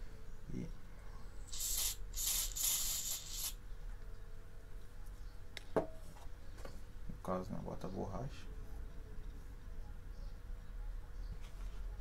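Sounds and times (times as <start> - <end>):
aerosol spray hissing: 1.5 - 3.6.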